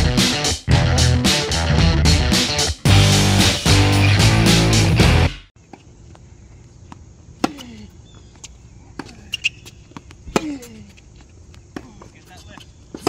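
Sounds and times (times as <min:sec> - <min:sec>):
tennis ball struck by rackets: 0:07.4 - 0:07.7.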